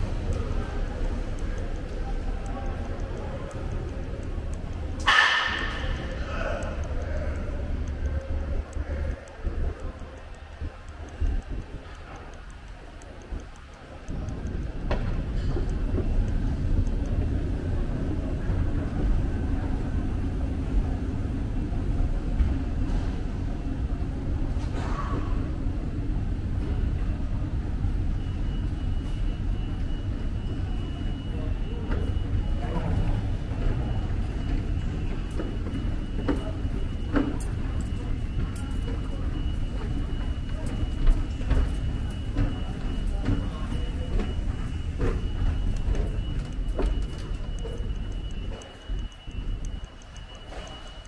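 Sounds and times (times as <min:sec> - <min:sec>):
subway train running underground: 0:00.0 - 0:51.0.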